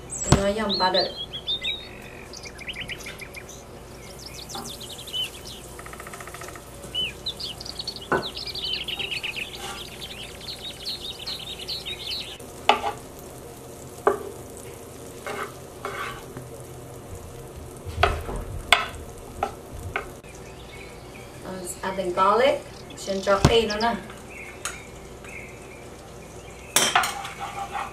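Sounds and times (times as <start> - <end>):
high chirping: 0.0 - 12.4, 20.2 - 26.8
butter sizzling in a pan: 0.0 - 27.9
wooden spatula scraping a pan: 9.6 - 10.0, 15.1 - 16.4, 26.8 - 27.9.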